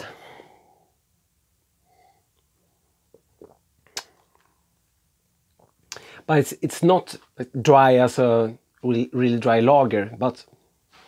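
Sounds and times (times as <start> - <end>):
lip and tongue clicks: 3.1 - 4.5.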